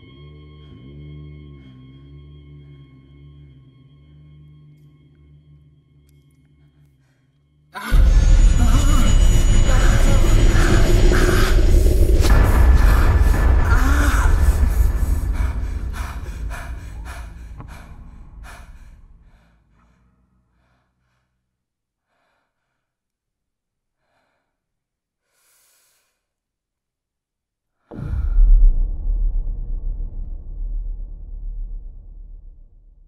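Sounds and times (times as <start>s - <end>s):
rhythmic pulsing sound: 7.9s - 19.2s
loud low rumble with drone: 7.9s - 19.7s, 27.9s - 33.0s.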